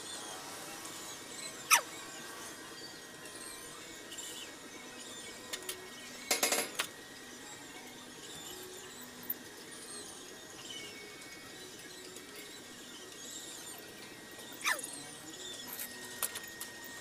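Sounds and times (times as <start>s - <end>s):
sharp squeal dropping in pitch: 1.5s - 1.9s, 14.6s - 14.9s.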